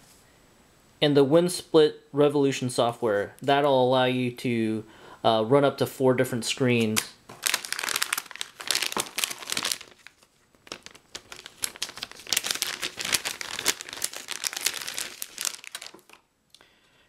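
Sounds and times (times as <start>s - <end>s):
plastic bag crinkling: 7.3s - 16.3s.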